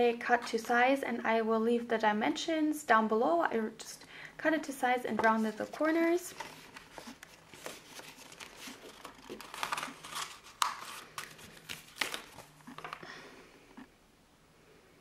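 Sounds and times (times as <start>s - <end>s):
paper rustling and sliding on plastic: 5.2s - 13.0s.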